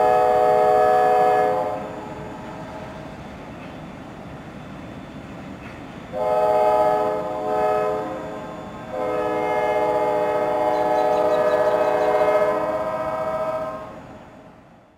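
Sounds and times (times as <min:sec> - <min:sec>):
locomotive air horn blowing: 0:00.0 - 0:03.1, 0:06.1 - 0:14.1
low rumble of train: 0:00.0 - 0:14.9.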